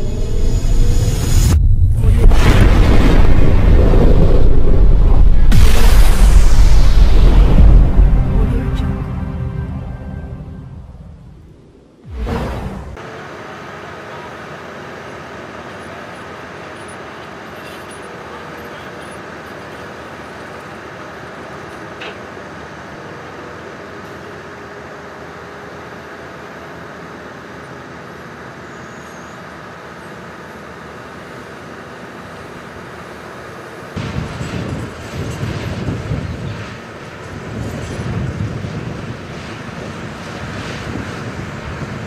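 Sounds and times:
uneven low rumble: 0.0s - 13.0s.

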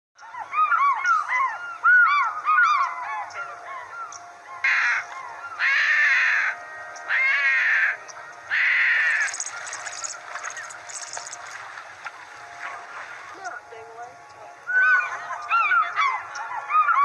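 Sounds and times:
harsh drawn-out animal calls: 4.7s - 11.5s, 14.7s - 17.0s.

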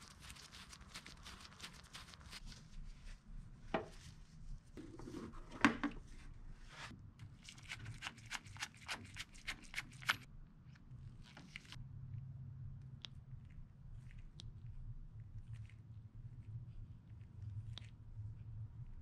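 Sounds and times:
metal cable fitting clicks and rubs: 7.5s - 10.3s.

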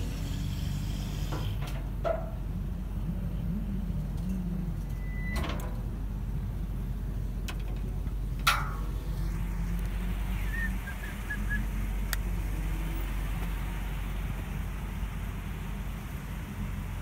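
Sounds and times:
truck engine low hum: 0.0s - 17.0s
sharp metallic clunk: 8.4s - 8.9s.

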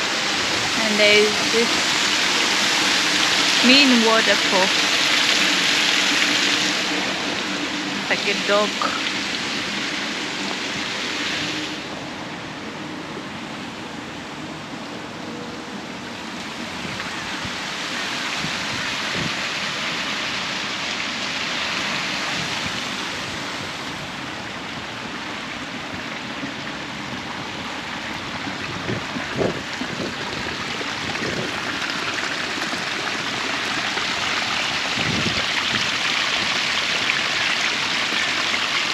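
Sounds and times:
water rushing at a waterfall: 0.0s - 38.9s.

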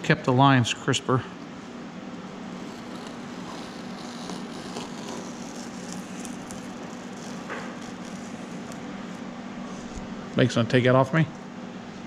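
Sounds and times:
low background hum: 0.0s - 12.0s
masking tape peeling crackles: 2.4s - 10.1s.

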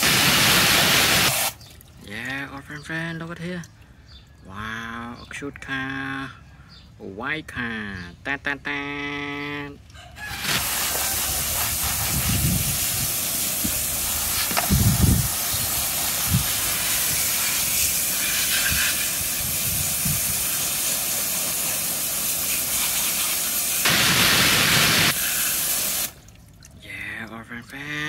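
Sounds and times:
hose nozzle spray hissing: 0.0s - 1.6s, 10.3s - 26.2s.

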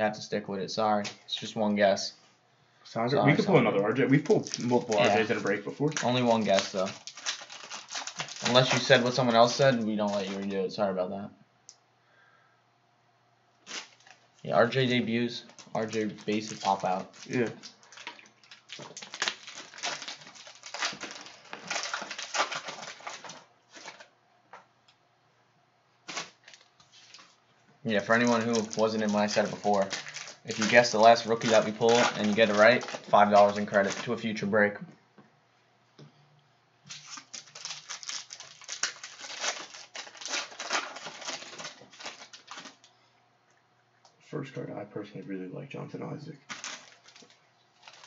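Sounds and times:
foil wrapper crinkling and tearing: 4.3s - 10.6s, 13.6s - 24.1s, 26.0s - 27.4s, 28.0s - 34.3s, 36.9s - 42.9s, 46.4s - 48.0s.

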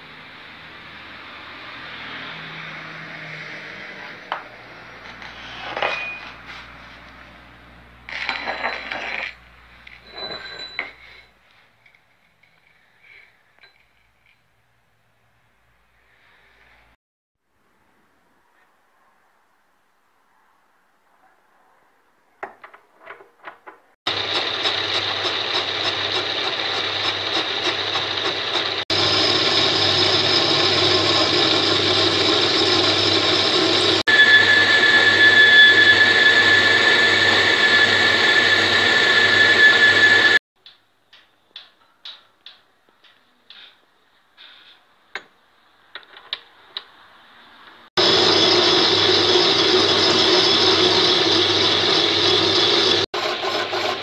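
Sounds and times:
high ringing tone: 5.8s - 6.4s, 8.1s - 9.3s, 10.0s - 11.3s, 28.9s - 40.4s
boring tool cutting metal: 24.1s - 40.4s
metal lathe running: 24.1s - 40.4s, 48.0s - 54.0s.

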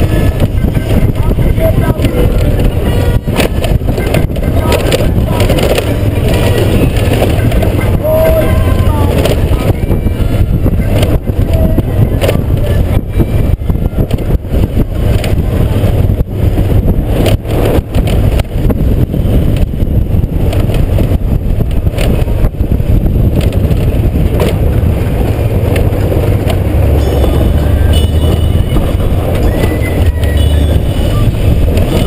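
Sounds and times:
motorcycle engine running: 0.0s - 32.0s
wind rumble on microphone: 0.0s - 32.0s.

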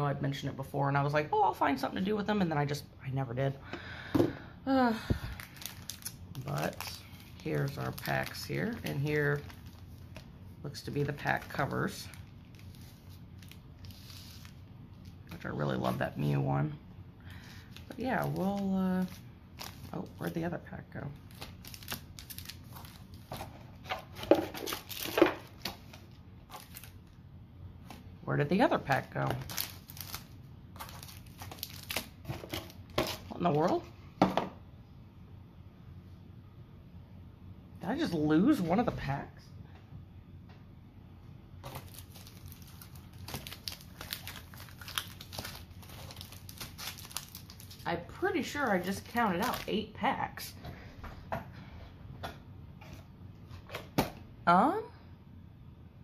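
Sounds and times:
foil packs crinkling: 5.2s - 10.3s, 10.9s - 16.1s, 17.4s - 20.5s, 21.2s - 23.4s, 24.4s - 27.2s, 28.8s - 33.6s, 41.6s - 47.9s, 48.7s - 49.7s.

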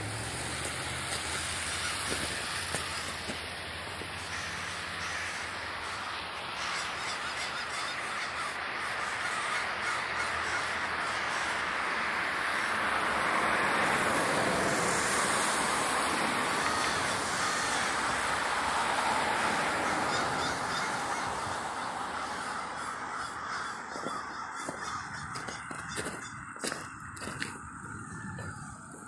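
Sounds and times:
crows cawing: 0.6s - 29.0s.

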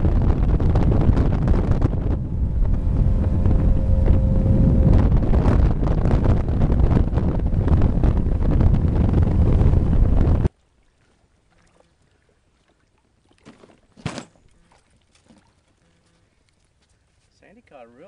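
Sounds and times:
wind buffeting microphone: 0.0s - 10.5s.

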